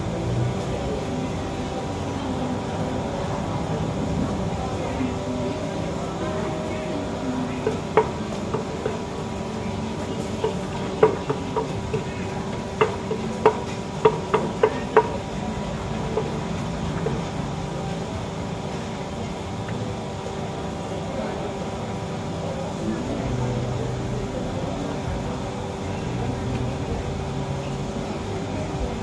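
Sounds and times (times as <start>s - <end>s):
wooden pestle pounding in mortar: 10.2s - 15.3s.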